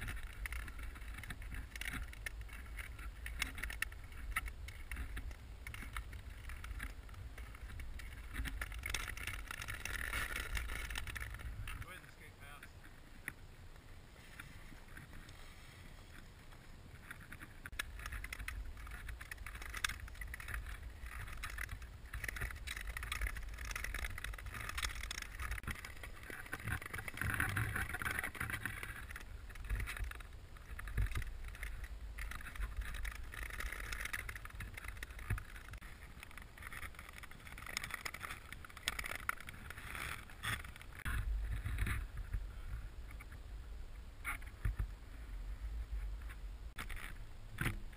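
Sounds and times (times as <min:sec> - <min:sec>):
wind rumble on microphone: 0:00.0 - 0:47.9
ice skates scraping on ice: 0:14.1 - 0:17.6.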